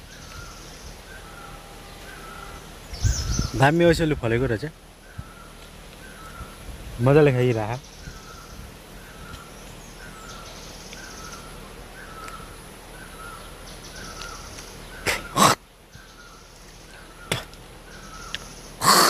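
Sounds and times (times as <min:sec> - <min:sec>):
harsh crow-like caws: 0:15.1 - 0:15.6, 0:18.8 - 0:19.0.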